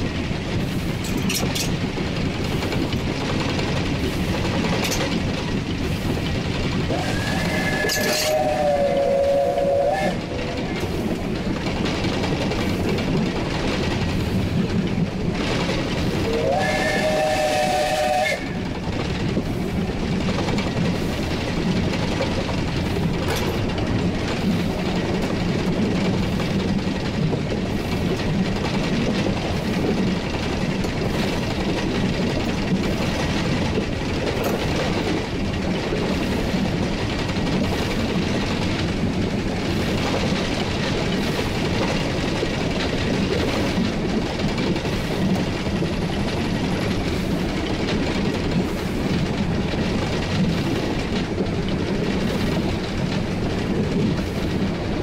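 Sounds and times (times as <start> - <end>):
train running noise: 0.0 - 55.0
wheel clicks over rail joints: 0.4 - 9.0, 18.6 - 55.0
steam whistle blasts: 6.9 - 10.2, 16.3 - 18.6.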